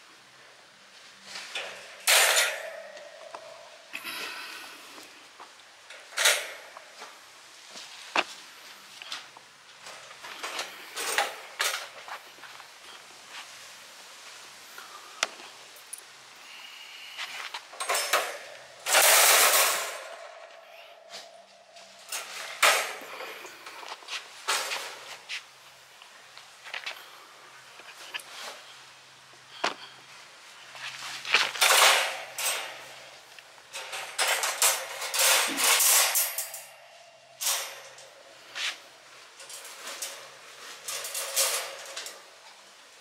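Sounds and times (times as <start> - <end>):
metal wire scraping: 1.3 - 4.1, 15.8 - 25.5, 30.6 - 42.4
wire panels rattling: 1.4 - 4.0, 5.9 - 7.0, 17.6 - 25.3, 31.3 - 42.7.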